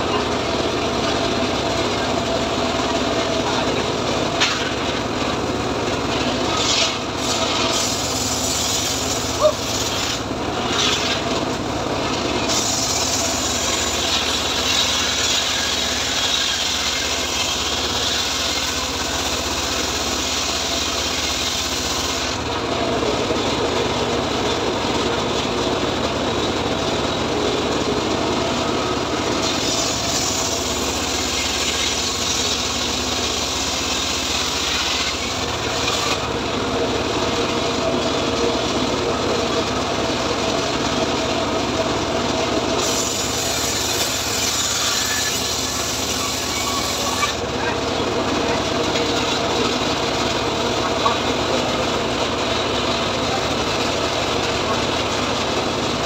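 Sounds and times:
engine droning: 0.0 - 56.0
circular saw ripping a log: 6.2 - 11.5, 12.4 - 22.4, 29.2 - 36.4, 42.8 - 47.6.

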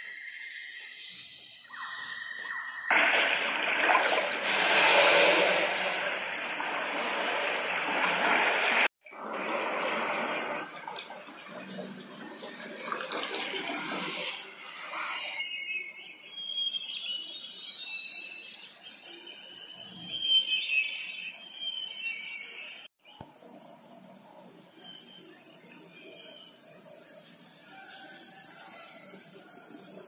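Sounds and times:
rushing surf-like noise: 2.9 - 10.5
insects trilling: 23.1 - 30.0.

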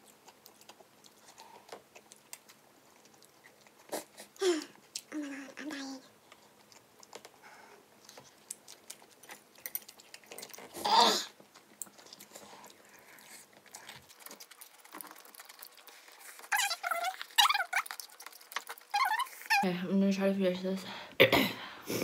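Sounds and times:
chewing: 0.0 - 19.7
noodle slurping: 10.0 - 19.6.

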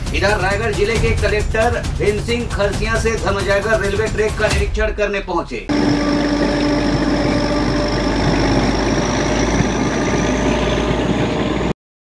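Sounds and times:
faint high whine: 5.7 - 11.7
train rumble and rail noise: 5.7 - 11.7.

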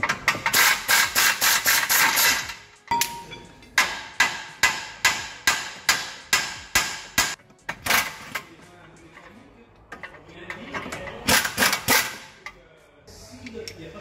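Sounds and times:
hammer striking steel: 0.5 - 7.4.

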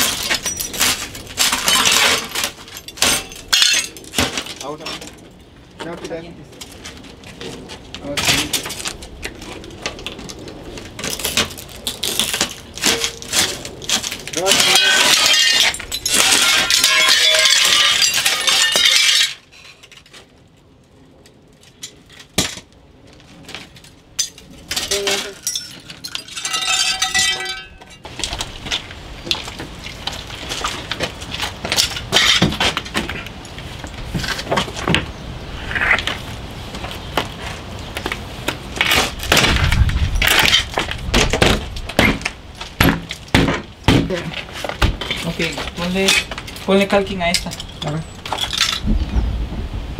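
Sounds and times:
broken glass crackling and tinkling: 0.0 - 5.2, 11.0 - 20.2, 24.2 - 28.1, 47.2 - 48.8.

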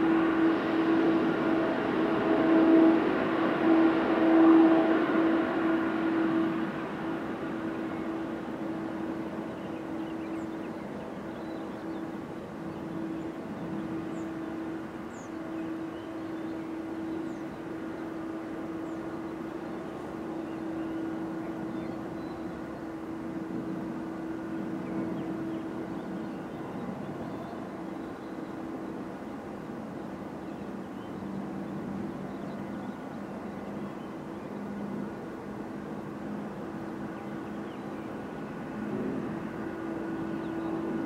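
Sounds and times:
constant hum: 0.0 - 41.0
jet engines droning: 0.0 - 41.0.

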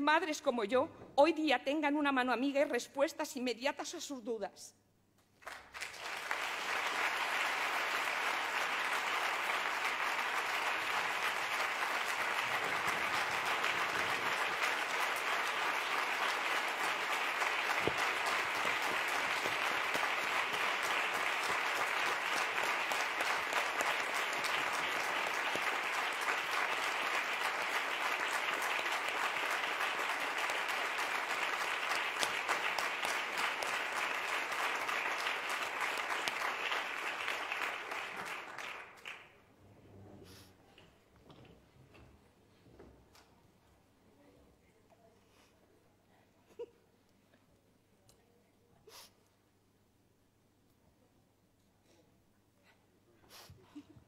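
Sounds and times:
large audience applauding: 5.4 - 39.4.

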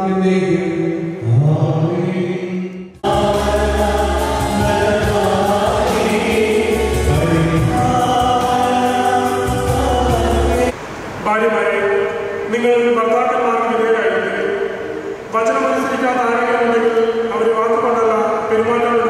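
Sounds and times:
choral singing with instruments: 1.2 - 10.8.

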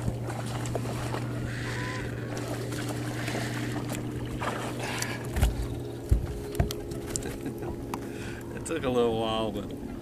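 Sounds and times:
electric trolling motor hum: 0.0 - 10.0
light knocks on boat: 5.3 - 8.0.

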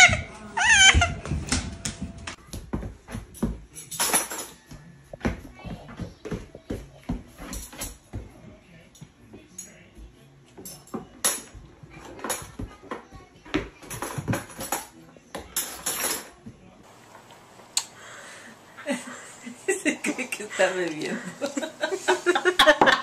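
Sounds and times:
kitchen utensils clinking: 3.4 - 4.7, 10.6 - 13.1, 13.7 - 16.4, 20.1 - 23.0.

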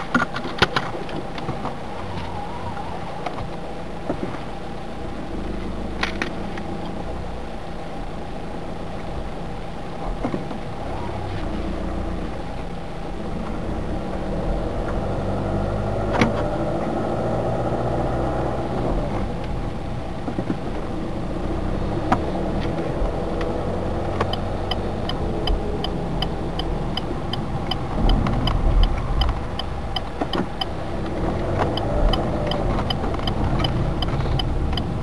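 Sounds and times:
car engine and road noise: 0.0 - 35.0
turn signal ticking: 8.1 - 35.0.

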